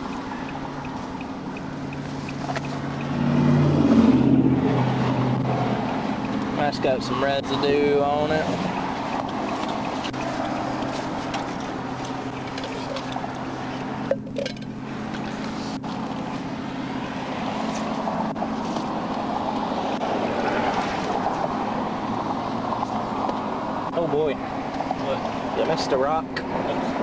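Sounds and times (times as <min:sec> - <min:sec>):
passing highway traffic: 0:00.0 - 0:27.0.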